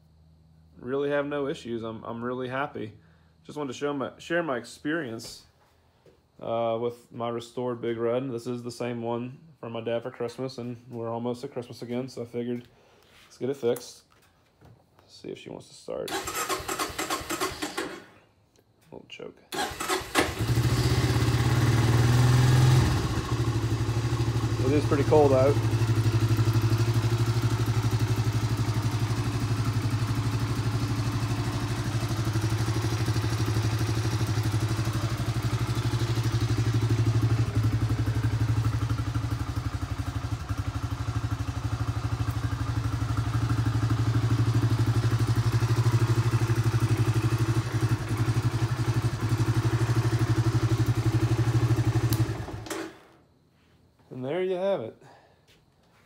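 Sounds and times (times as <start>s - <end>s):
engine idling: 19.6s - 52.6s.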